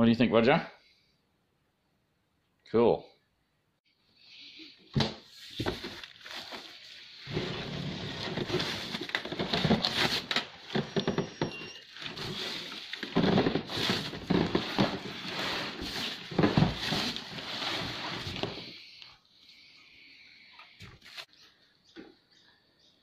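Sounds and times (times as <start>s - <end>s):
cardboard scraping and rustling: 5.3s - 18.8s
plastic wrap crinkling: 5.6s - 11.0s.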